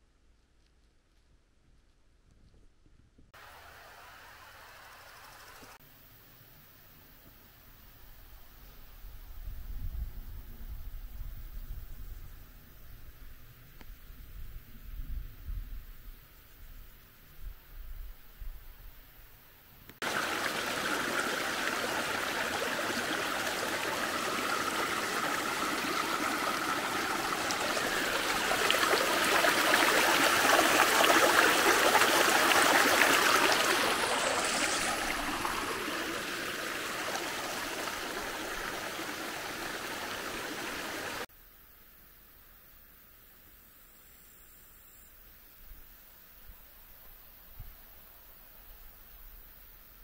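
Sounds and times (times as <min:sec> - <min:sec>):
stream flowing: 0:03.4 - 0:05.8, 0:20.0 - 0:41.3.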